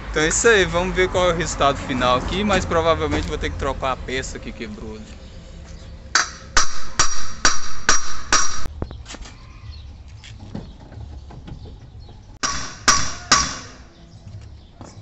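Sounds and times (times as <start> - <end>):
hammer striking metal: 6.1 - 8.7, 12.4 - 14.0.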